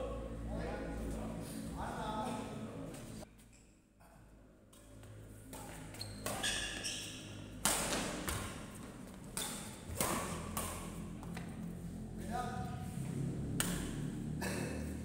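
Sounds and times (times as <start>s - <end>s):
badminton racket hits: 5.5s - 11.5s, 13.6s - 14.0s.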